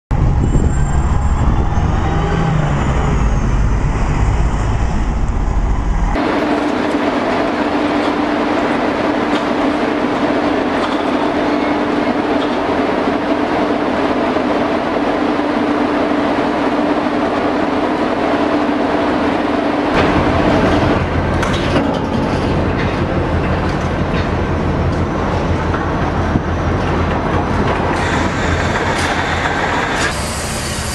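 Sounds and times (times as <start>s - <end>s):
deep low rumble: 0.1s - 6.2s
machinery running hum: 0.1s - 30.9s.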